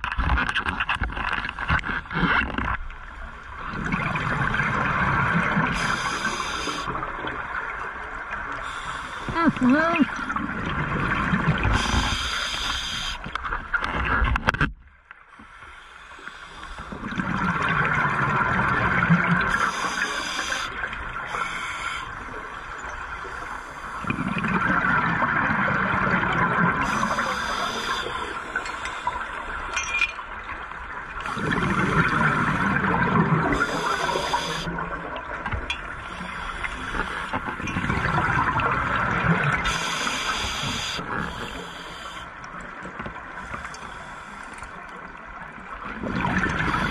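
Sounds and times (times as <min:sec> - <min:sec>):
exhaled bubbles rushing: 0:03.5 - 0:06.2, 0:10.2 - 0:12.1, 0:16.9 - 0:20.0, 0:24.0 - 0:27.2, 0:31.1 - 0:35.6, 0:37.4 - 0:40.0, 0:45.8 - 0:46.9
regulator hiss on inhale: 0:05.7 - 0:06.9, 0:08.6 - 0:09.3, 0:11.7 - 0:13.3, 0:15.3 - 0:17.0, 0:19.5 - 0:22.2, 0:26.8 - 0:29.3, 0:33.6 - 0:34.7, 0:36.1 - 0:37.4, 0:39.6 - 0:42.3, 0:43.4 - 0:44.8.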